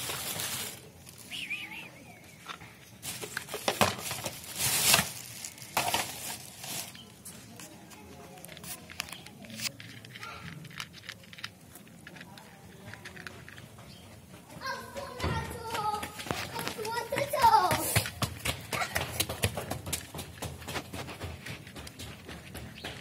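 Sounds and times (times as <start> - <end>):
rustling crinkling: 0.0 - 14.0.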